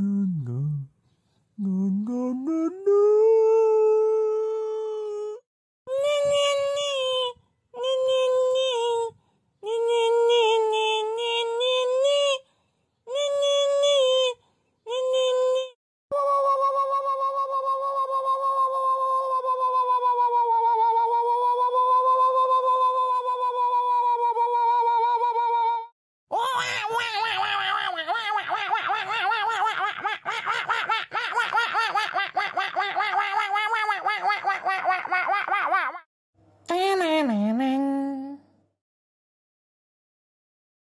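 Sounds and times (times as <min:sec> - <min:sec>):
high voice humming wordless tune: 0:00.0 - 0:01.0, 0:01.6 - 0:12.4, 0:13.1 - 0:30.3, 0:36.7 - 0:38.5
high-pitched laughter: 0:26.3 - 0:36.1.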